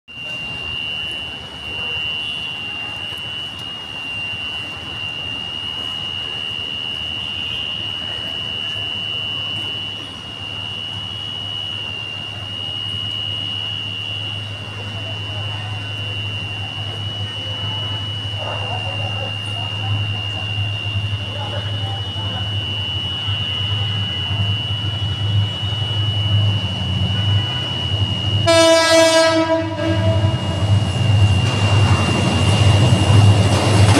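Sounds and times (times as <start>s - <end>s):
level crossing warning buzzer: 0.1s - 33.9s
low hum: 12.7s - 33.9s.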